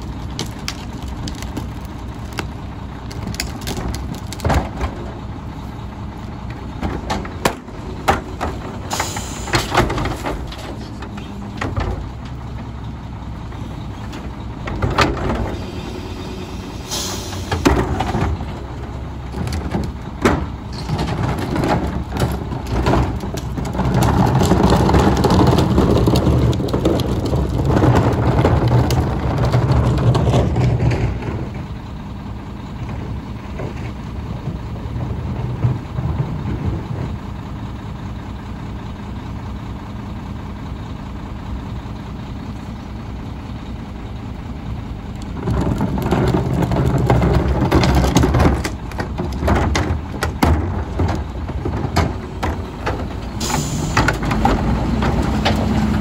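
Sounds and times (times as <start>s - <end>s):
cart tipper dumping: 0.0s - 39.3s, 42.9s - 56.0s
garbage truck diesel engine running: 0.0s - 56.0s
short air hisses: 15.6s - 17.5s
plastic carts clanking: 19.3s - 31.5s, 45.3s - 56.0s.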